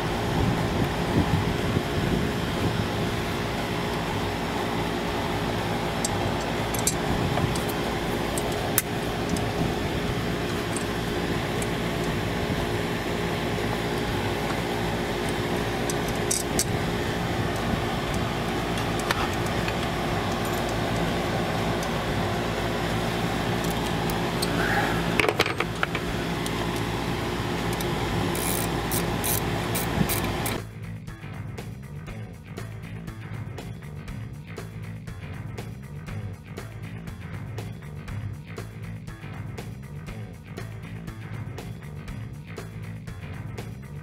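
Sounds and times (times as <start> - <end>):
mechanical hum: 0.0 - 30.7.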